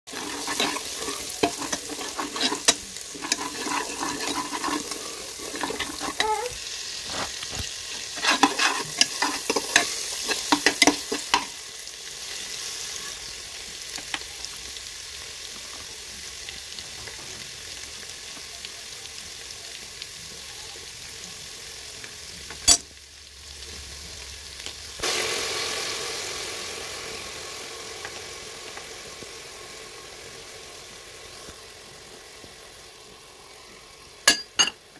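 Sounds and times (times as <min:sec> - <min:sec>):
spatula scraping and tapping pan: 0:00.1 - 0:11.5
masala sizzling in oil: 0:00.1 - 0:34.9.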